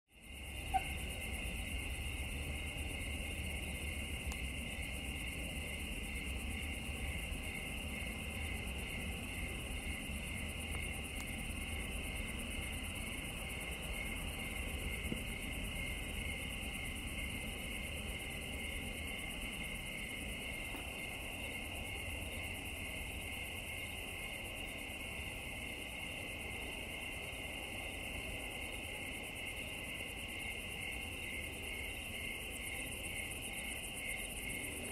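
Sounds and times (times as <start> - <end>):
crickets trilling: 0.1 - 34.9
low steady rumble: 0.2 - 24.0.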